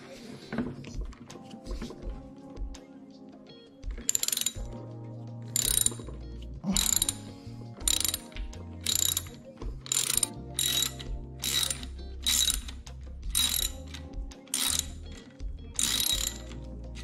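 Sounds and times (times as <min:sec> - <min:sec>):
ratchet pawl clicks: 0:04.1 - 0:04.8, 0:05.5 - 0:06.2, 0:06.8 - 0:17.0.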